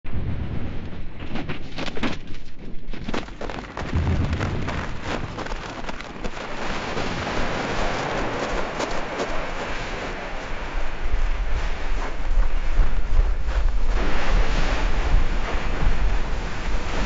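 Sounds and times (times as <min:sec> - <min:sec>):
snow cracking: 0:02.9 - 0:17.0
snow rushing down slope: 0:03.4 - 0:17.0
deep rumble: 0:03.6 - 0:08.8.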